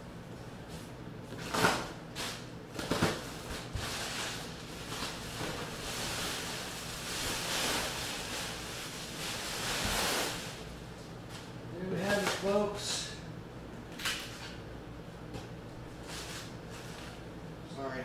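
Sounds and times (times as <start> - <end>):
bubble wrap rustling: 1.5 - 10.8.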